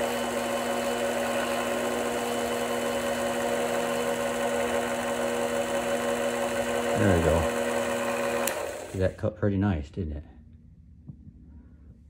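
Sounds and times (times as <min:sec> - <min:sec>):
lathe motor hum and whine: 0:00.0 - 0:09.0.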